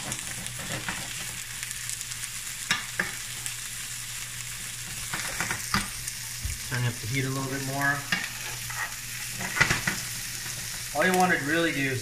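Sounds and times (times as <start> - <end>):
shrimp sizzling in frying pan: 0.0 - 12.0
wooden spoon scraping a pan: 8.0 - 10.9.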